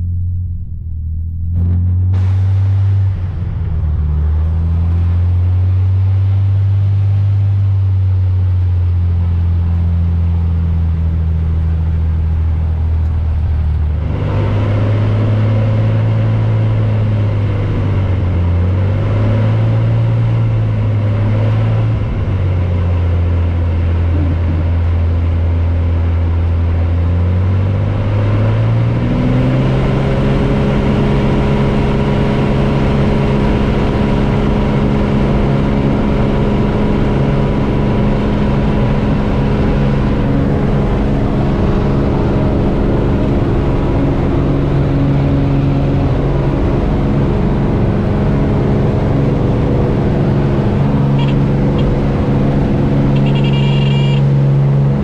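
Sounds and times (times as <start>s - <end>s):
engine droning: 0.0s - 55.0s.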